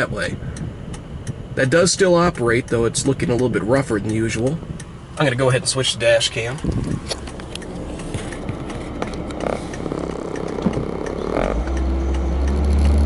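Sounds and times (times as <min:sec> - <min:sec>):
car engine and road noise: 0:00.0 - 0:13.0
camera knocking on dashboard: 0:08.0 - 0:11.3.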